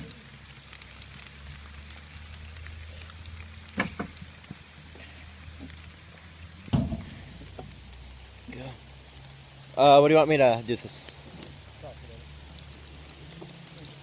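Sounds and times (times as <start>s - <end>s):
steady rain falling: 0.0s - 14.0s
sharp knocks: 6.7s - 7.1s.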